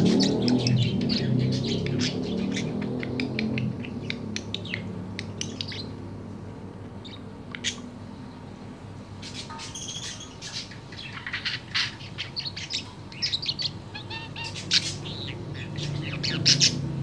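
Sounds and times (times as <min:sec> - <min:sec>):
budgerigar chirping: 0:00.0 - 0:06.0, 0:07.0 - 0:07.9, 0:09.2 - 0:17.0
budgerigar warbling: 0:09.4 - 0:16.9.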